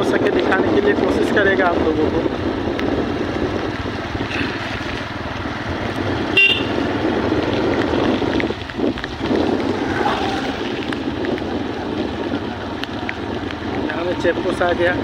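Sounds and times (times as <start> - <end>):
air rushing past: 7.0 - 12.3.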